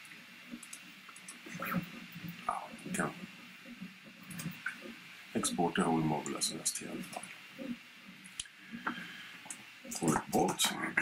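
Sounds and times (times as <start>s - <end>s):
low room noise: 0.0s - 11.0s
computer mouse clicking: 0.5s - 2.4s.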